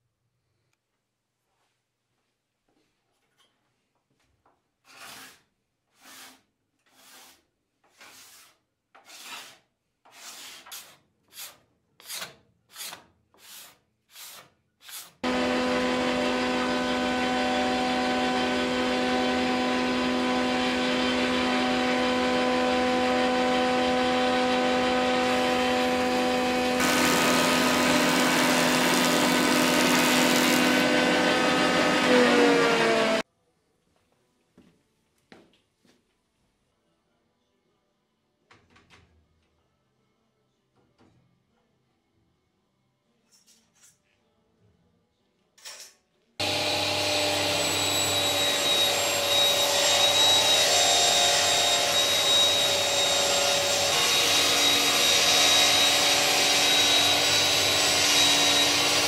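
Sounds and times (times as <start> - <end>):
hand tool rubbing across wood: 4.8 - 15.2
machine cutting a board: 15.2 - 33.2, 46.4 - 59.0
woodworking machine motor hum: 15.2 - 33.2, 46.4 - 59.0.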